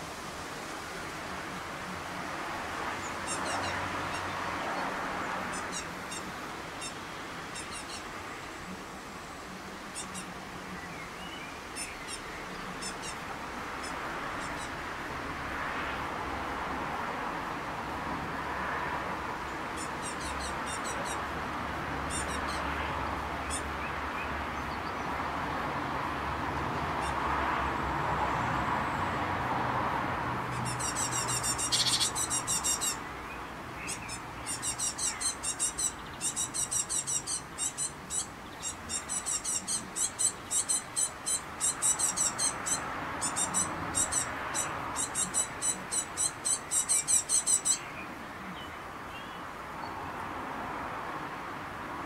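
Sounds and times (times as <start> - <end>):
fledgling birds calling: 3.0 - 8.1, 9.9 - 14.8, 19.7 - 24.9, 30.4 - 48.7.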